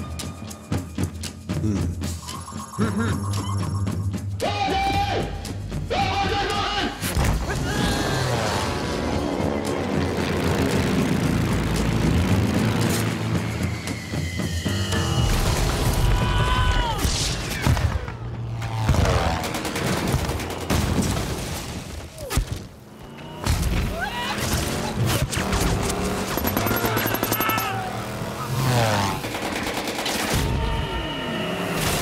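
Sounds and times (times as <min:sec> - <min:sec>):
gunfire bursts: 0:26.3 - 0:27.8.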